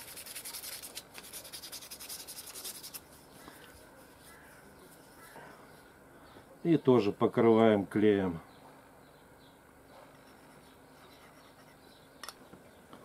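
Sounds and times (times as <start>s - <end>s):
sandpaper rubbing on tube: 0.0s - 3.3s.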